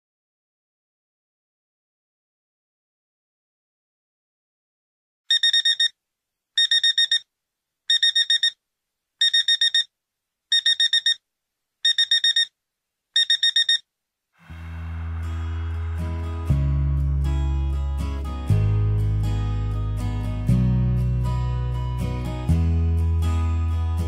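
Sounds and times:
digital alarm clock beeping: 5.3 - 5.9, 6.6 - 7.2, 7.9 - 8.6, 9.2 - 9.9, 10.5 - 11.2, 11.8 - 12.5, 13.2 - 13.8
music with low held notes: 14.6 - 24.0.

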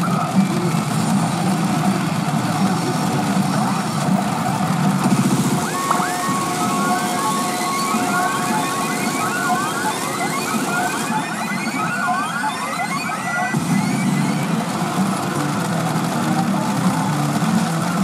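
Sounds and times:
steady electronic held tones: 5.5 - 14.6
rising electronic chirps: 5.6 - 14.6.

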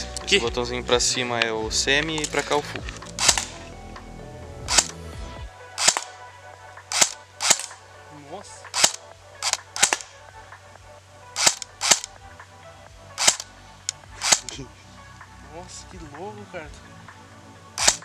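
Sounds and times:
airsoft rifle single shots: 3.2 - 3.6, 4.7 - 5.0, 5.8 - 6.1, 6.9 - 7.8, 8.7 - 10.1, 11.4 - 12.1, 13.2 - 13.5, 14.2 - 14.5, 17.8 - 18.0.

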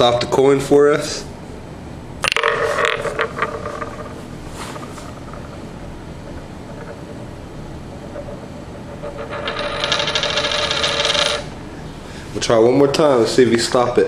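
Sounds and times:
coin spinning and rattling on floor: 2.2 - 7.3, 7.9 - 11.5.

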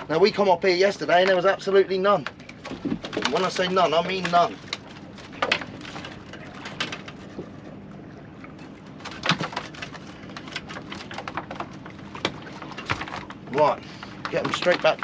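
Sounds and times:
boat engine idling: 0.0 - 15.0
knocks and clatters on board: 2.2 - 7.5, 9.0 - 15.0.

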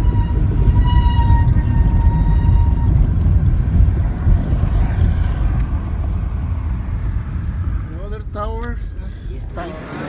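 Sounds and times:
car road rumble inside cabin: 0.0 - 10.0.

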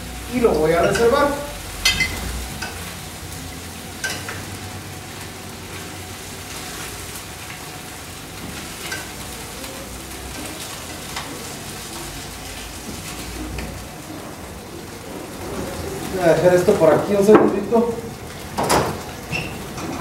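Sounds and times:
chicken sizzling in hot oil: 0.0 - 20.0
metal tongs clicking on pan: 4.0 - 4.4.

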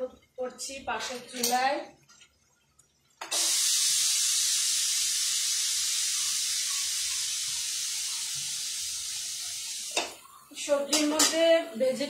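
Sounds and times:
pressure cooker steam hissing: 3.2 - 12.0.

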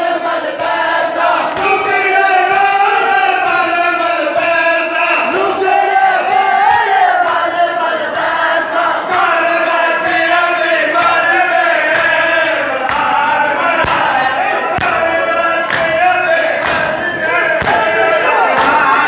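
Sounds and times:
men chanting together: 0.0 - 19.0
chest slaps from many hands: 11.0 - 13.2, 13.8 - 18.9.

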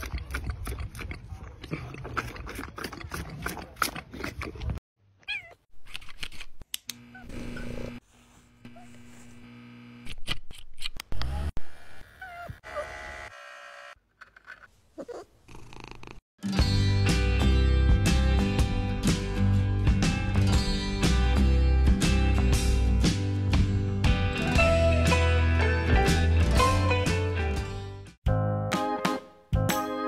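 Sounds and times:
cat meowing: 5.2 - 5.6.

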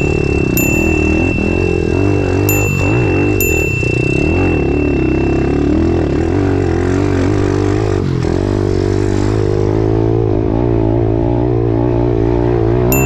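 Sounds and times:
motorbike engine revving: 0.0 - 13.0.

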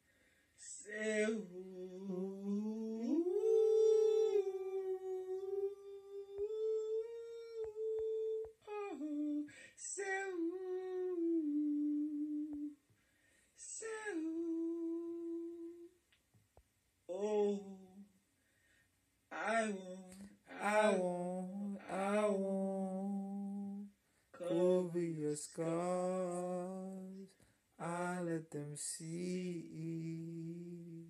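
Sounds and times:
person humming a slow melody: 0.6 - 12.8, 13.6 - 16.0, 17.1 - 18.1, 19.4 - 31.0.

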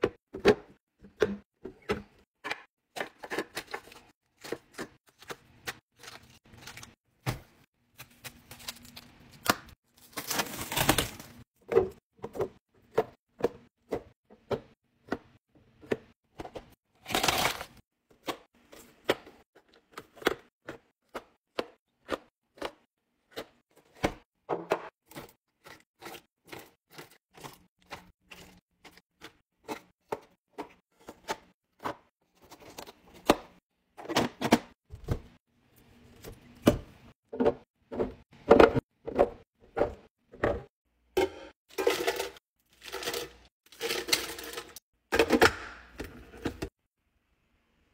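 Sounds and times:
plastic wrap tearing and crinkling: 8.0 - 11.4.

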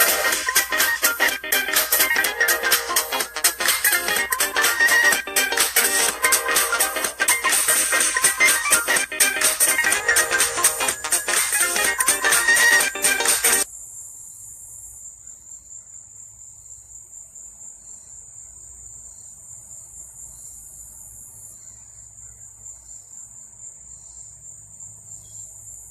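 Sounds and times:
music: 0.0 - 13.7
crickets chirping: 13.6 - 25.9.

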